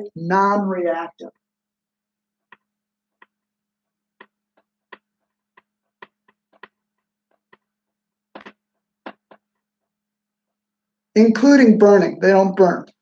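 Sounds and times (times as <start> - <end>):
marker writing on whiteboard: 2.4 - 10.6.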